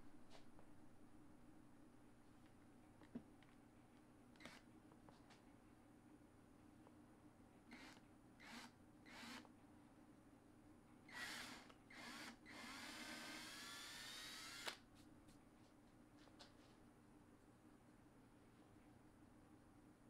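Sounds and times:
cordless drill into wood: 7.7 - 9.5, 11.1 - 14.8.

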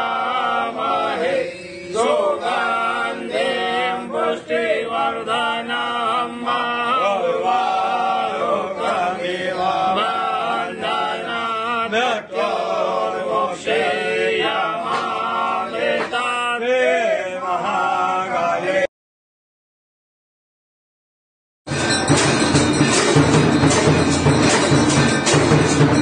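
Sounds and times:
men singing a devotional chant: 0.0 - 18.9.

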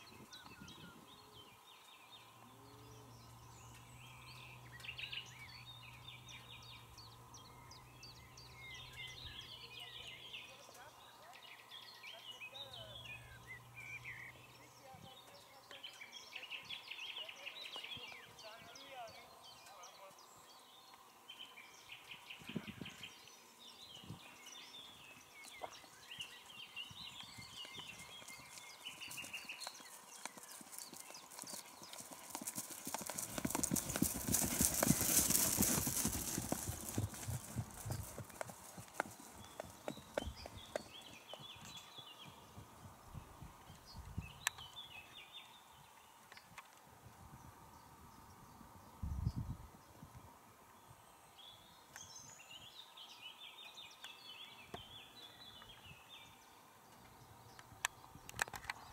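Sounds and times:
songbird singing faintly: 0.0 - 58.9
horse hoofbeats on grass: 24.7 - 43.5.

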